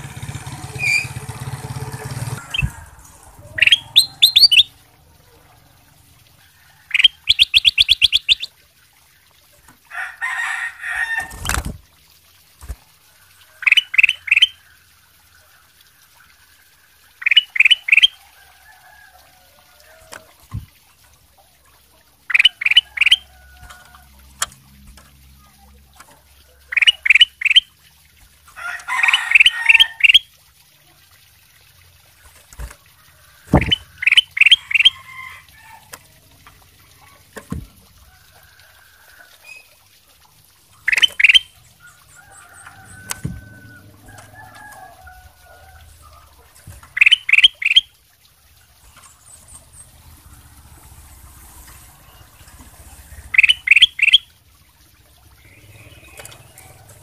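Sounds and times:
bird singing bright phrases: 0.7s - 1.3s, 3.4s - 4.8s, 6.9s - 8.6s, 40.8s - 44.3s, 46.9s - 47.9s, 52.0s - 54.3s, 55.4s - 57.0s.

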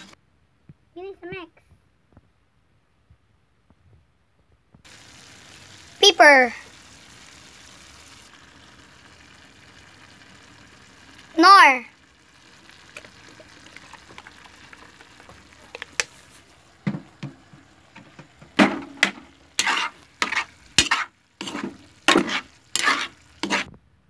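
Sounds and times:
food frying with faint sizzle: 4.8s - 23.8s
metal spatula scraping a pan: 18.7s - 23.7s.

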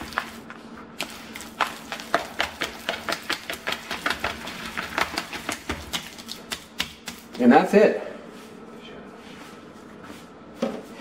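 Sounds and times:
hand kneading wet meat: 0.0s - 7.5s.

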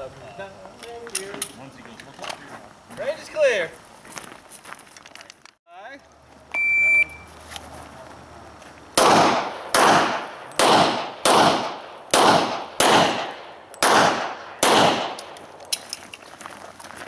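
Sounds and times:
pistol shots with echo: 9.0s - 15.6s.

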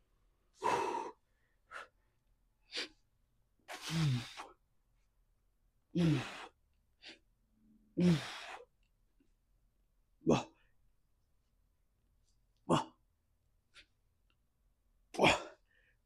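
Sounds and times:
man breathing hard: 0.5s - 3.0s, 8.0s - 8.7s
effortful voiced exhales: 3.7s - 4.5s.

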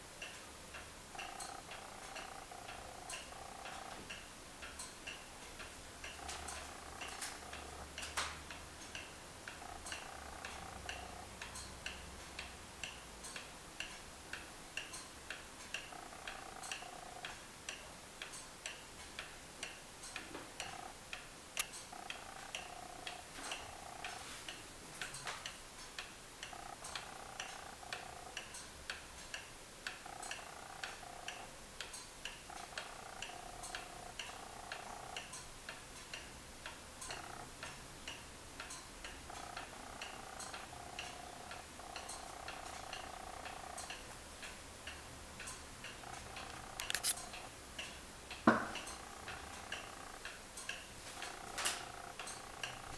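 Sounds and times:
faint background tone: 0.0s - 52.9s
wall clock ticking: 0.0s - 52.9s
sharp click: 46.8s - 47.3s.

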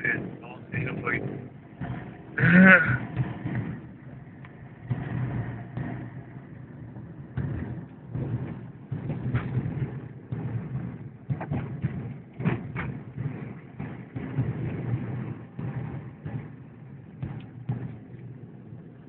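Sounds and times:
car engine and road noise: 0.0s - 19.0s
knocks: 7.3s - 18.3s.

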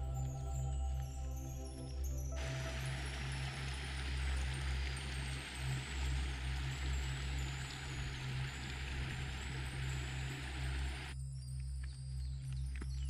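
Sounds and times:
river rushing over stones: 2.4s - 11.1s.

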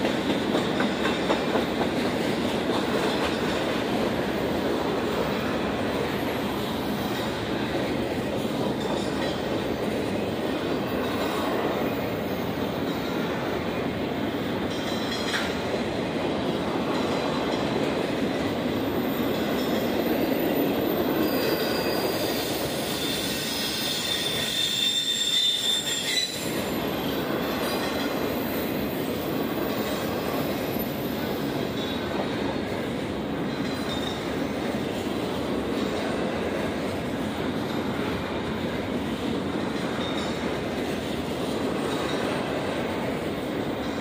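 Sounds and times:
train wheels rumbling on rails: 0.0s - 44.0s
high wheel squeal: 20.9s - 27.8s.

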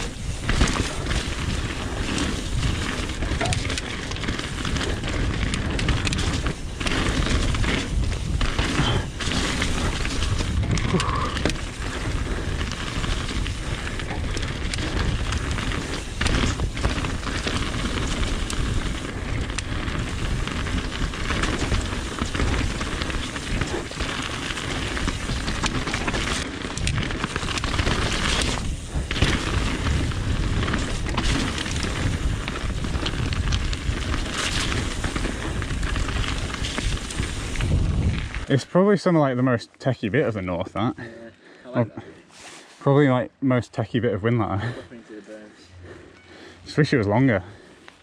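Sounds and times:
wind noise on microphone: 0.0s - 38.5s
bike tyres rumbling on gravel: 0.0s - 42.6s, 45.8s - 48.0s.

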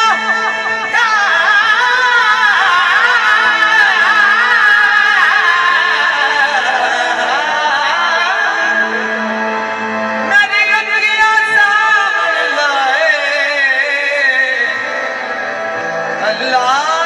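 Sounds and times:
harmonium: 0.0s - 17.0s
man singing ornamented melody: 0.0s - 17.0s.

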